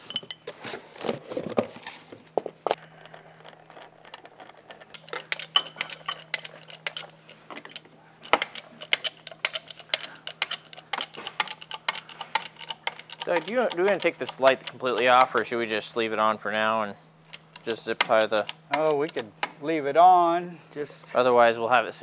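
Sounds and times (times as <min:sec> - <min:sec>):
low steady hum: 0:00.0 - 0:22.0
bottle jack metallic clicks: 0:04.8 - 0:15.6, 0:17.3 - 0:19.6.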